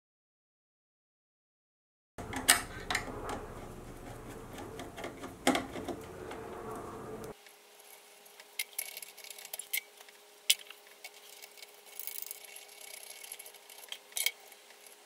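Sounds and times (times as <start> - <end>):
wires and hardware clicking: 2.2 - 7.3
faint steady hum: 2.2 - 15.0.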